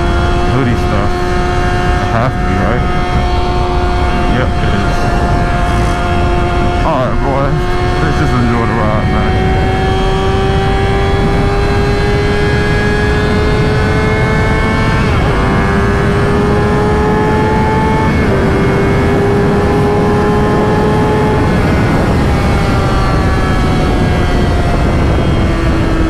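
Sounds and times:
motorcycle engine at speed: 0:00.0 - 0:26.0
wind rush: 0:00.0 - 0:26.0.

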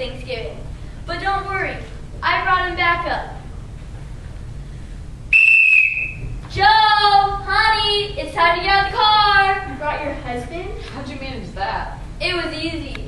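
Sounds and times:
sports whistle blast: 0:05.3 - 0:06.3.

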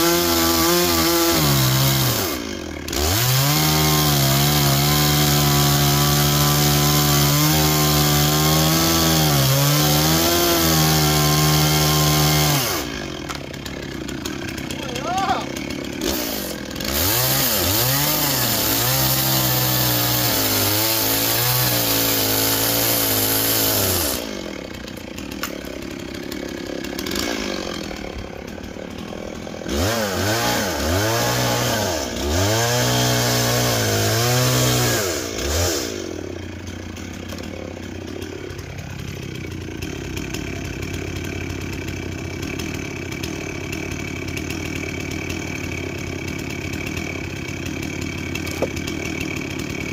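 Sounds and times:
chainsaw revving and idling: 0:00.0 - 0:49.9.

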